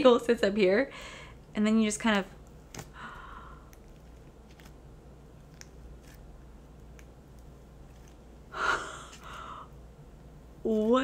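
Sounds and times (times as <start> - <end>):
person gasping: 2.9 - 3.7, 8.5 - 9.8.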